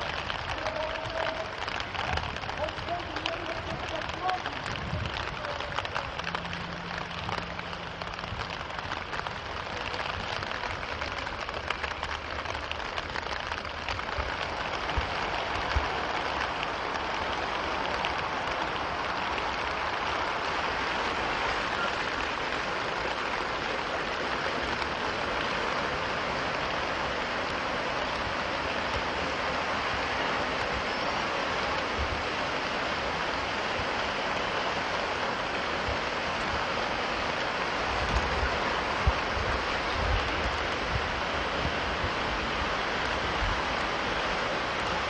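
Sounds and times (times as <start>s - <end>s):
floodwater rushing: 0.0s - 45.0s.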